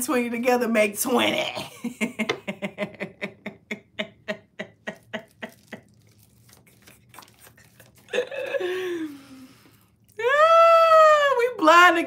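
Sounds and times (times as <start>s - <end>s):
woman laughing: 1.4s - 6.0s, 7.4s - 9.2s.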